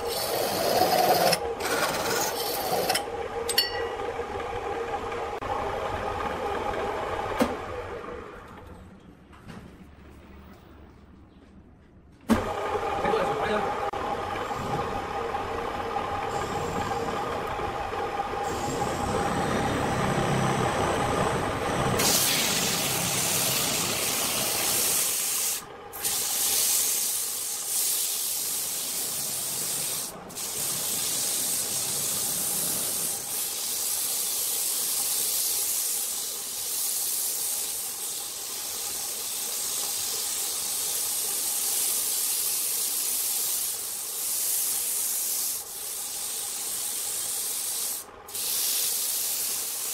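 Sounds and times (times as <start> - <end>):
sanding hiss on spinning wood: 0.0 - 2.9, 21.9 - 49.9
wood lathe humming: 0.0 - 7.3, 12.6 - 22.0.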